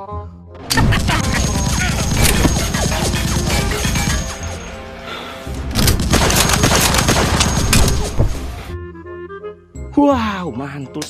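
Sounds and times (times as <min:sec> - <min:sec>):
loud action music: 0:00.7 - 0:08.7
rapid gunfire: 0:00.8 - 0:04.6, 0:05.8 - 0:08.2.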